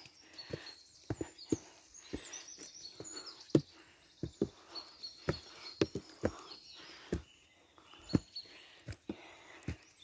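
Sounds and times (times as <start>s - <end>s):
birds chirping faintly: 0.0s - 10.0s
footsteps on forest trail: 0.0s - 10.0s.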